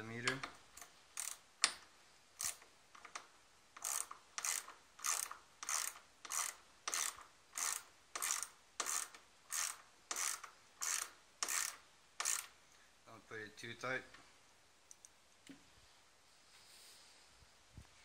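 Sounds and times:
ratchet clicking: 0:00.3 - 0:01.8, 0:02.4 - 0:12.6.

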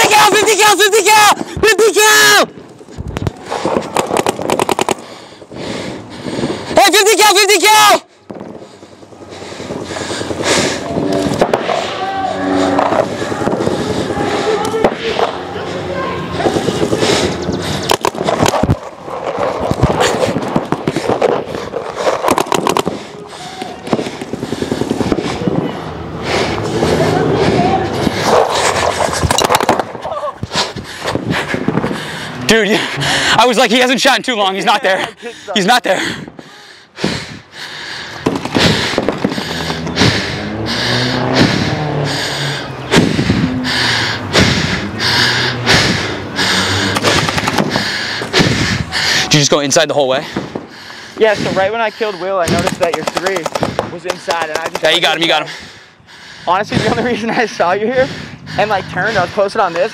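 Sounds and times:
fast heavy breathing: 0:02.8 - 0:06.9, 0:08.0 - 0:59.9
paintball markers firing: 0:03.2 - 0:05.2, 0:17.8 - 0:23.0, 0:38.2 - 0:39.8, 0:46.9 - 0:47.8, 0:52.4 - 0:55.1.

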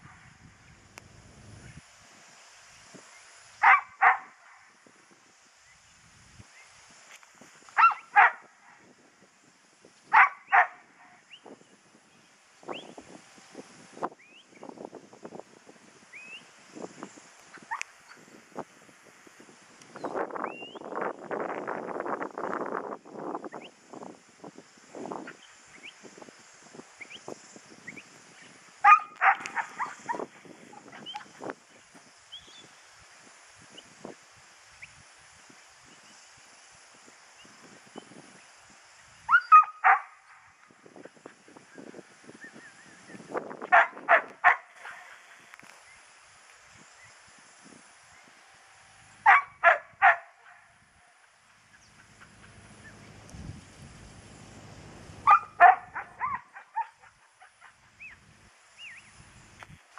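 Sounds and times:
dog barking: 0:03.6 - 0:04.3, 0:07.8 - 0:08.5, 0:10.1 - 0:10.8, 0:28.8 - 0:30.2, 0:39.3 - 0:40.2, 0:43.7 - 0:45.1, 0:49.2 - 0:50.7, 0:55.2 - 0:57.8.

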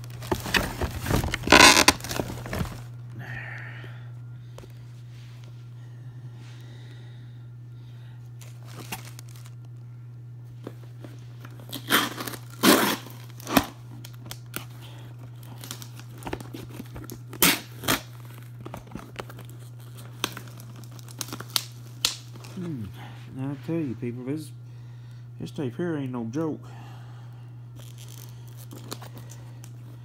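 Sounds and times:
packing tape tearing: 0:00.0 - 0:02.9, 0:08.4 - 0:09.6, 0:11.1 - 0:22.8, 0:27.8 - 0:29.8
tape crackles: 0:00.0 - 0:03.2, 0:08.3 - 0:22.8, 0:27.7 - 0:30.0
steady low hum: 0:00.0 - 0:30.0.

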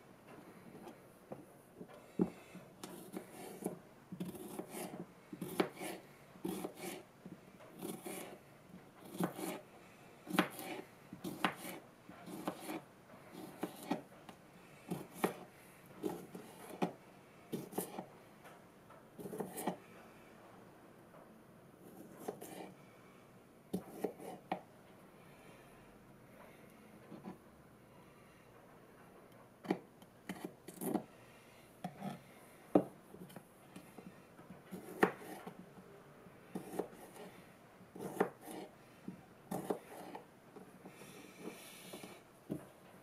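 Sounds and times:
knife slicing cucumber on board: 0:02.2 - 0:07.0, 0:09.0 - 0:09.6, 0:10.3 - 0:12.8, 0:13.4 - 0:14.0, 0:14.9 - 0:16.9, 0:17.6 - 0:18.1, 0:19.2 - 0:19.8, 0:23.7 - 0:24.5, 0:34.7 - 0:35.6, 0:36.6 - 0:37.3, 0:38.0 - 0:38.7, 0:39.5 - 0:40.2.

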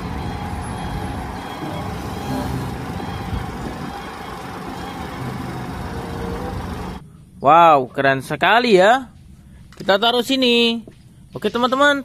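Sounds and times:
diesel truck engine running: 0:00.0 - 0:07.4.

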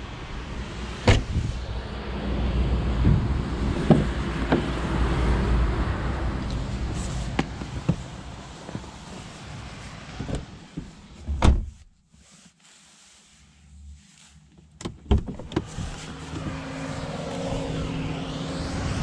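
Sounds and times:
car trunk lid thump: 0:01.0 - 0:01.4, 0:11.3 - 0:11.8
wind on microphone: 0:01.0 - 0:08.3, 0:15.6 - 0:19.0.

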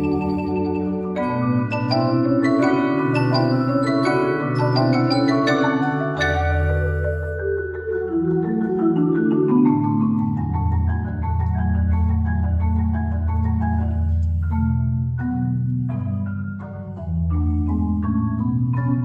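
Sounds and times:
mallet percussion ensemble: 0:00.0 - 0:19.0.

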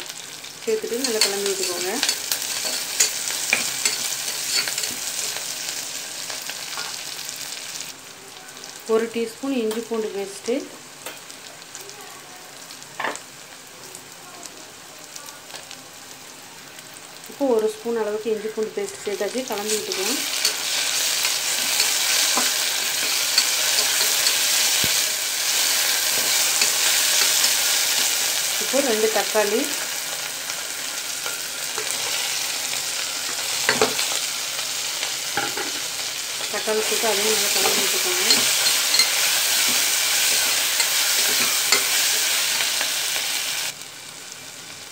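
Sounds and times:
vegetables sizzling in hot oil: 0:00.0 - 0:44.9
metal spatula scraping a pot: 0:01.0 - 0:05.4, 0:19.7 - 0:24.9.

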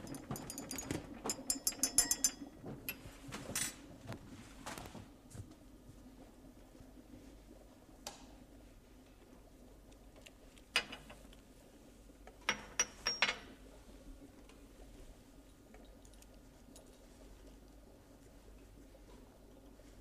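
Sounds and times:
glass-on-glass clinks: 0:00.0 - 0:02.5, 0:12.5 - 0:13.5
faint steady hum: 0:00.0 - 0:20.0.

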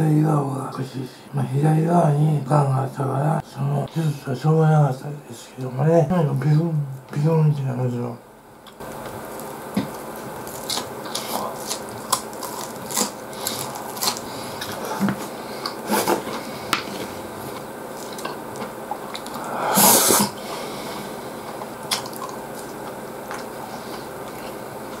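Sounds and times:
man chewing food: 0:08.6 - 0:25.0
brief loud hiss: 0:19.6 - 0:20.4.

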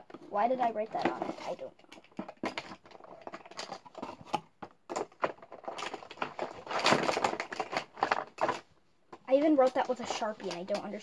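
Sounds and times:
rustling scrape: 0:00.2 - 0:01.7.

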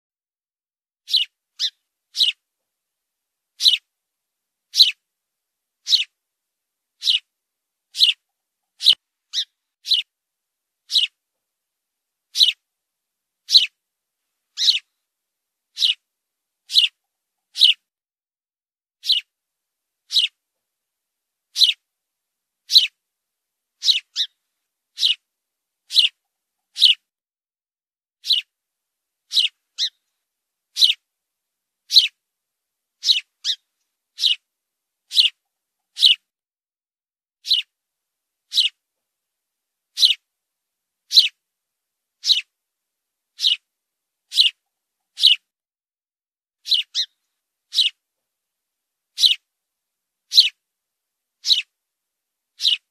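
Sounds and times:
sparrow chirping: 0:01.0 - 0:02.4, 0:03.6 - 0:03.9, 0:04.7 - 0:05.0, 0:05.8 - 0:06.2, 0:07.0 - 0:07.3, 0:07.9 - 0:10.1, 0:10.8 - 0:11.2, 0:12.3 - 0:12.6, 0:13.4 - 0:13.8, 0:14.5 - 0:14.9, 0:15.7 - 0:16.1, 0:16.7 - 0:17.8, 0:19.0 - 0:19.3, 0:20.0 - 0:20.4, 0:21.5 - 0:21.8, 0:22.6 - 0:23.0, 0:23.8 - 0:27.1, 0:28.2 - 0:28.5, 0:29.2 - 0:30.1, 0:30.7 - 0:31.0, 0:31.8 - 0:32.2, 0:33.0 - 0:34.5, 0:35.1 - 0:36.2, 0:37.4 - 0:37.7, 0:38.5 - 0:38.8, 0:39.9 - 0:40.2, 0:41.1 - 0:41.4, 0:42.2 - 0:42.5, 0:43.4 - 0:43.7, 0:44.3 - 0:45.5, 0:46.6 - 0:48.0, 0:49.1 - 0:49.5, 0:50.3 - 0:50.6, 0:51.4 - 0:51.7, 0:52.6 - 0:52.9.

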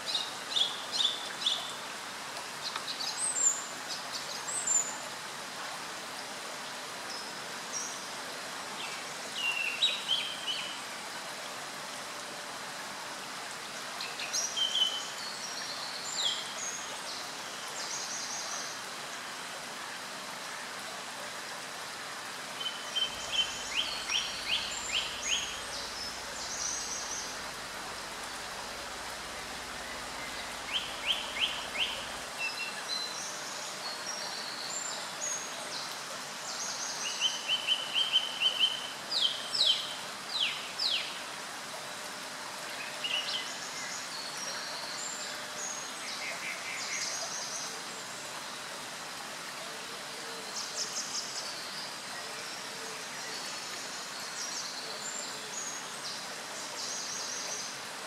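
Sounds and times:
small birds singing: 0:00.0 - 0:01.9, 0:22.5 - 0:41.4
steady background hiss: 0:00.0 - 0:58.0.

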